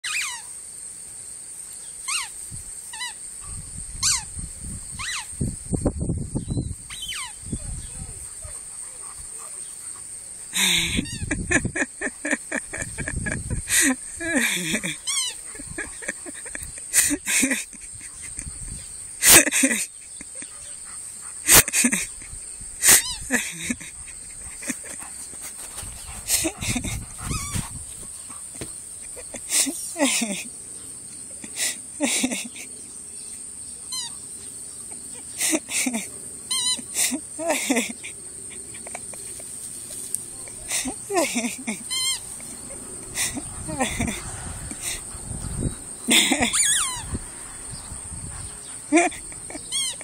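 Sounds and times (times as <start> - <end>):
squeaky dog toy squeaking: 0.0 - 0.4, 4.0 - 4.2, 5.0 - 5.3, 41.9 - 42.2, 46.5 - 47.0
squeaky dog toy: 0.0 - 0.5, 2.1 - 2.3, 4.0 - 4.3, 5.0 - 5.3, 6.9 - 7.4, 15.1 - 15.4, 22.9 - 23.3, 36.5 - 36.8, 41.9 - 42.2, 46.5 - 47.0, 49.7 - 50.0
high-pitched insect drone: 1.8 - 50.0.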